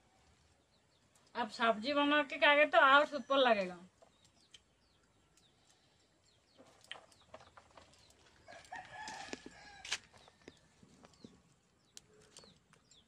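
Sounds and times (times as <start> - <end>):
small birds chirping: 0.0 - 13.0
rooster crowing: 8.4 - 10.1.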